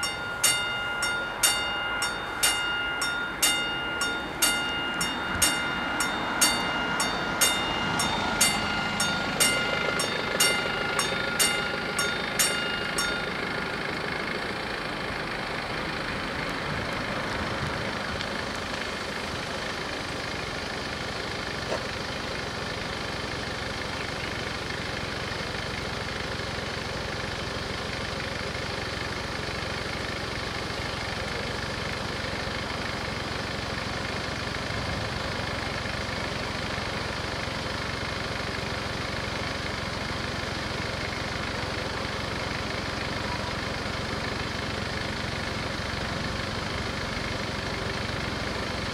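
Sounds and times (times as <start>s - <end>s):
level crossing bells ringing: 0.0s - 14.8s
cars idling: 0.0s - 48.9s.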